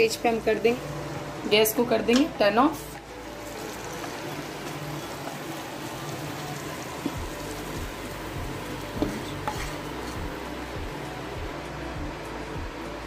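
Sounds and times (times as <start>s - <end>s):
pan sizzling: 1.5s - 11.6s
spoon scraping: 8.9s - 10.3s.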